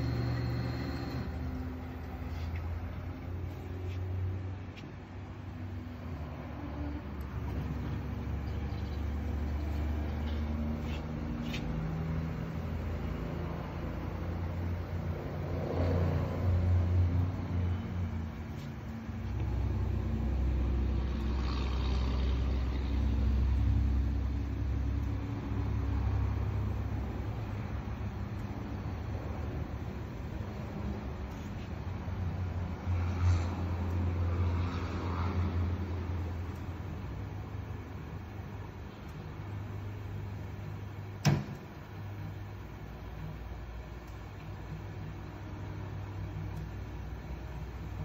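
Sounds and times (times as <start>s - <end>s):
dishwasher motor hum: 0.0s - 6.4s.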